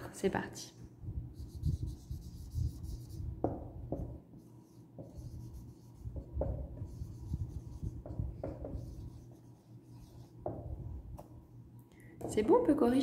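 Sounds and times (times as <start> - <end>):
pen writing strokes: 4.7 - 10.4.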